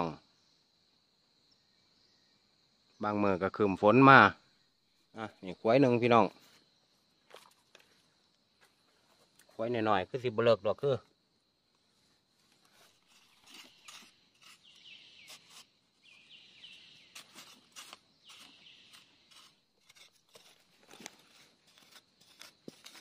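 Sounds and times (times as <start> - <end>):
soil being dug by hand: 12.5 - 23.0.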